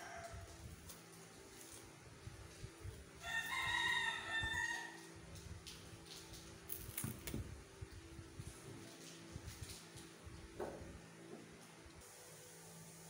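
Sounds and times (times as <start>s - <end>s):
rooster crowing: 0.0s - 0.6s, 3.2s - 5.1s.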